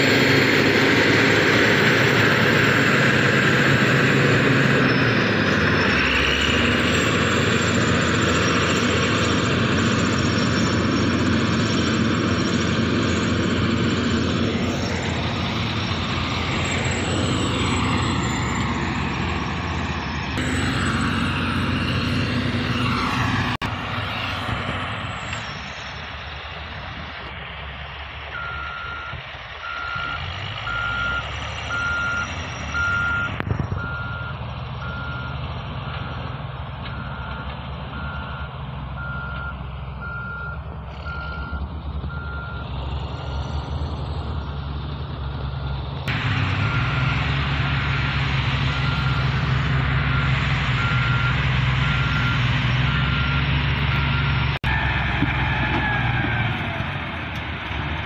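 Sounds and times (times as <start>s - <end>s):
diesel engine running: 0.0s - 58.0s
reversing alarm beeping: 20.4s - 23.1s, 28.3s - 48.0s, 48.6s - 54.8s.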